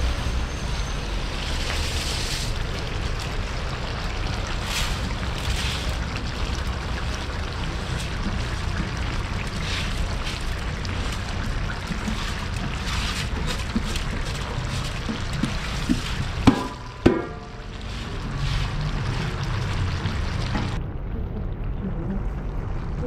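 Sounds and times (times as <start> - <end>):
low rumble of boiling pot: 0.0 - 23.0
hiss of rice hitting liquid: 4.6 - 6.1.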